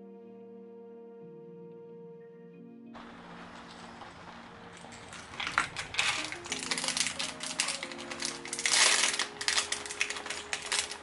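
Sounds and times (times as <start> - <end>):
soft background music: 0.0 - 11.0
plastic lures clicking and rattling: 3.0 - 11.0
plastic wrapping crinkling: 3.0 - 11.0.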